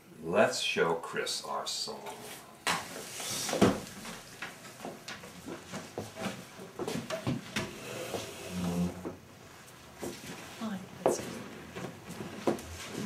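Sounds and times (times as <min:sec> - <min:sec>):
chairs shifting on wooden floor: 0:02.7 - 0:09.2, 0:11.1 - 0:13.0.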